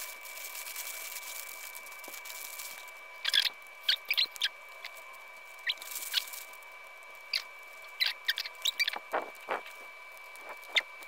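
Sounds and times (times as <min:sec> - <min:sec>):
plastic bag rustling: 0:00.0 - 0:03.4, 0:04.9 - 0:07.9
faint high whine: 0:00.0 - 0:11.0.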